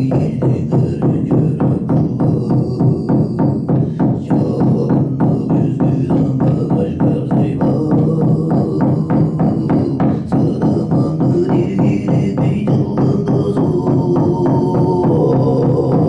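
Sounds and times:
frame drum beating: 0.0s - 16.0s.

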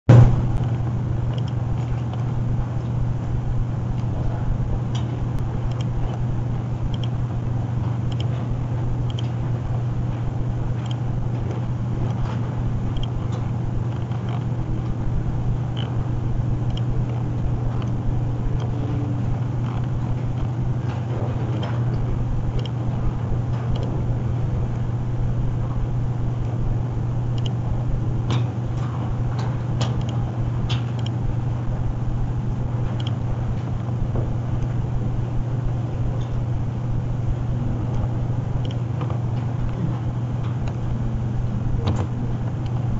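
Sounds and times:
steady low hum: 0.0s - 42.9s
computer mouse clicks: 0.6s - 2.2s, 5.0s - 6.3s, 6.9s - 7.2s, 8.1s - 9.4s, 10.8s - 13.2s, 16.7s - 18.0s, 18.6s - 22.8s, 23.7s - 24.0s, 27.4s - 27.6s, 28.3s - 31.2s, 33.0s - 33.2s, 37.9s - 40.8s.

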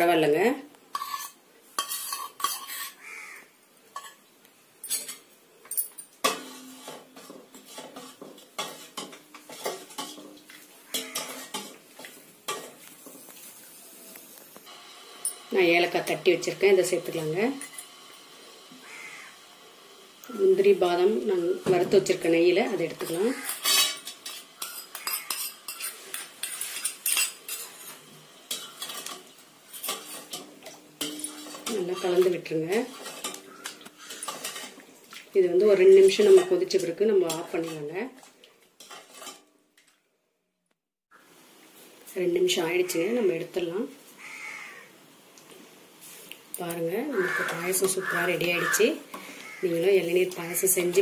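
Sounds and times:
ladle scraping steel pot: 0.9s - 3.0s, 6.2s - 10.3s, 10.9s - 12.7s, 22.8s - 34.8s, 35.8s - 38.0s, 38.8s - 39.5s
spoon clinking on steel pot: 10.9s - 11.7s.

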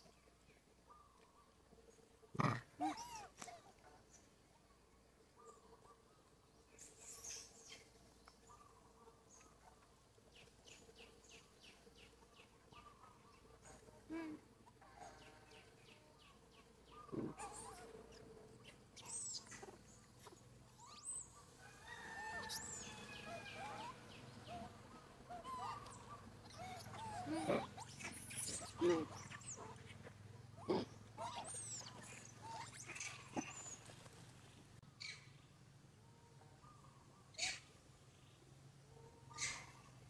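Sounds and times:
animal chirps and squeaks: 22.3s - 24.0s, 25.3s - 30.0s, 30.6s - 33.9s, 39.3s - 39.8s.

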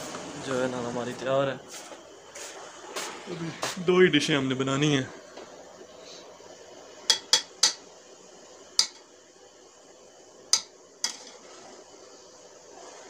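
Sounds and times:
metal spoon clinking on pot rim: 7.1s - 7.8s, 8.8s - 9.0s, 10.6s - 11.4s.

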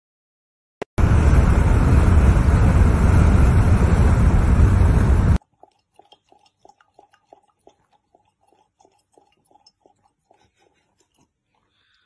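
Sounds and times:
road noise: 1.0s - 5.4s
wind buffeting microphone: 1.0s - 5.4s.

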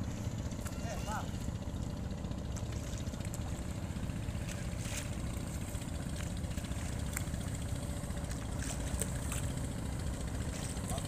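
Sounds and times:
boat engine rumbling: 0.0s - 11.0s.

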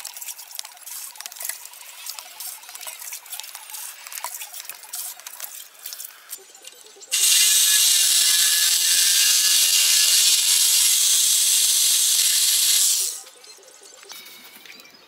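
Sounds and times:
reciprocating saw cutting plastic pipe: 7.1s - 13.2s.

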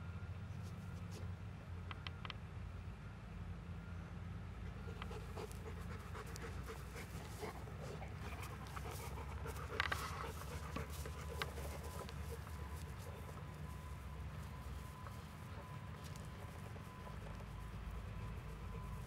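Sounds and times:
low steady rumble: 2.6s - 19.0s
dog panting: 4.6s - 19.0s.

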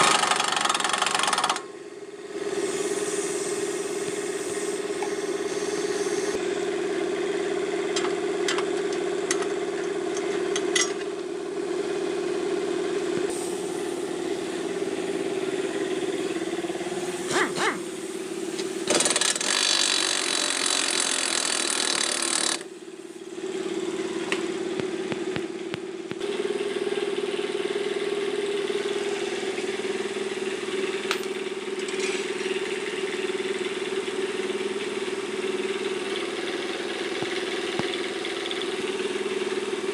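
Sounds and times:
pneumatic impact wrench: 0.0s - 1.8s, 2.4s - 6.4s, 13.2s - 14.2s, 16.8s - 23.1s
steady mechanical hum: 0.0s - 39.9s.

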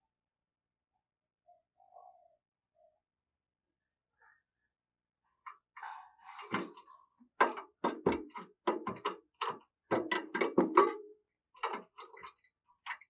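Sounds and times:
bird tapping and knocking in cage: 7.4s - 11.0s.

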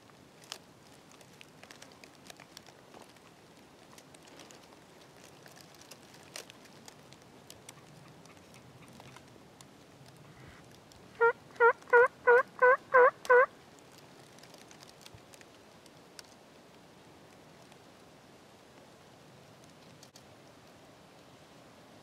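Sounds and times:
turkey yelping: 11.2s - 13.5s.

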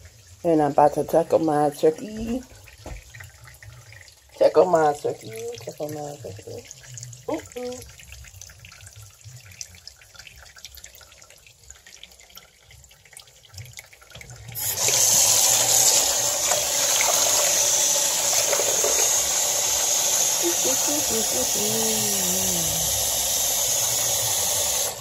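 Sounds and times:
faucet water running into sink: 0.0s - 25.0s.

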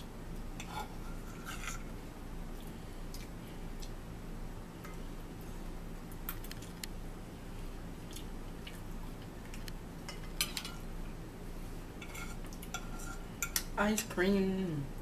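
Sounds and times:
forks scraping on plates: 0.6s - 1.9s, 12.0s - 13.6s.

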